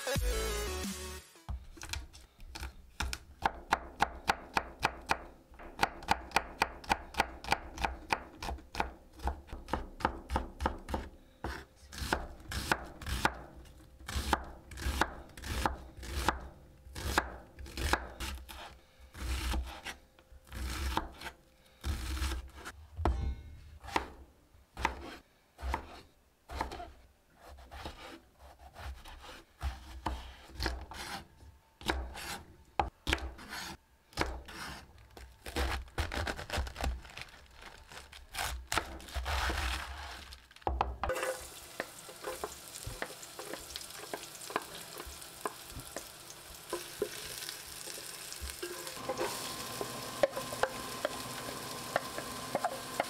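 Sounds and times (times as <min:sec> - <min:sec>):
knife chopping on wooden board: 0:02.6 - 0:13.4, 0:31.8 - 0:34.8, 0:48.3 - 0:51.2, 0:51.9 - 0:53.0
wooden spatula scraping pot: 0:41.1 - 0:46.1, 0:48.6 - 0:53.0
onion sizzling in oil: 0:41.1 - 0:53.0.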